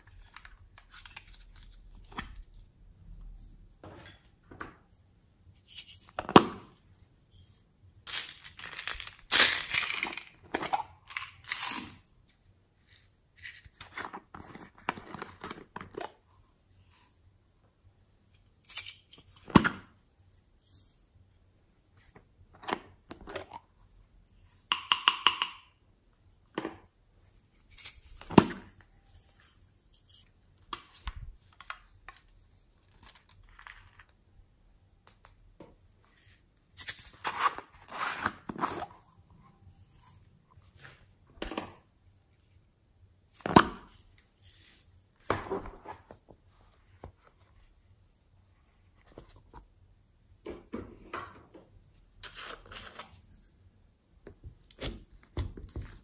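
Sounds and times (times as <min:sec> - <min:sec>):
plastic toys clicking and tapping: 0:24.7 - 0:25.7.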